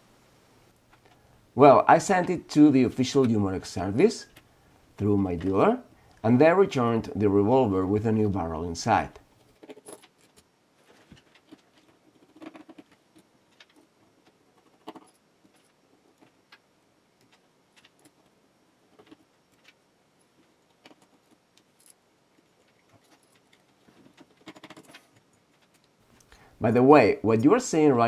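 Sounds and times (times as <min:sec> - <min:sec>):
revolver parts clicking and clinking: 0:09.4 - 0:26.3.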